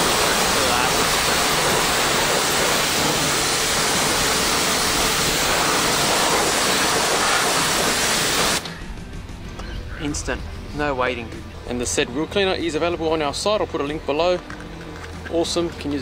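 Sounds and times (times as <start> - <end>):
pressure washer spraying wheel: 0.0 - 8.7.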